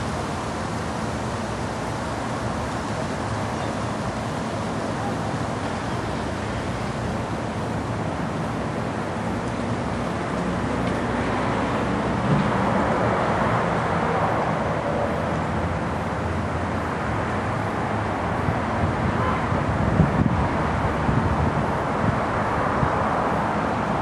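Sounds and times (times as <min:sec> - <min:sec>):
distant vehicle rumble: 0:00.0 - 0:24.0.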